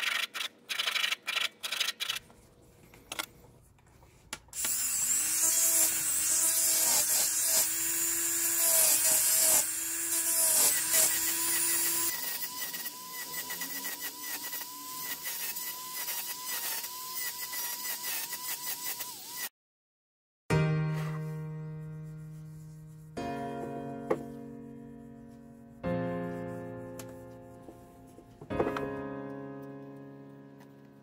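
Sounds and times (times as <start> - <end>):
rotary tool motor whine: 4.6 - 19.5.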